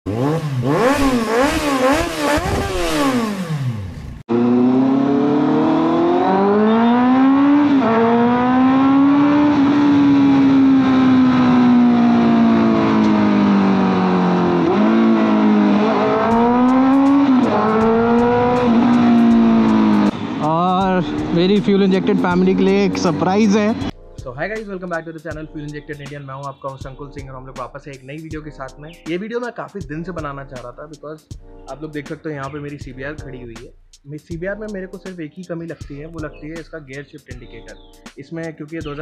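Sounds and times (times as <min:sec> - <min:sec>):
motorcycle engine revving: 0:00.1 - 0:23.9.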